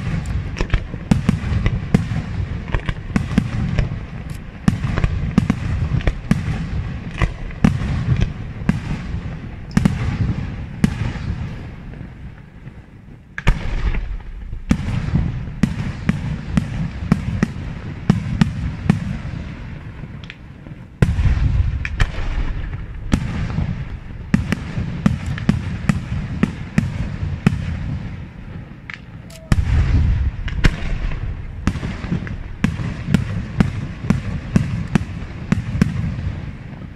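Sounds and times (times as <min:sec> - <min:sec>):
continuous low rumble: 0:00.0 - 0:36.9
firework shells bursting: 0:28.8 - 0:36.0.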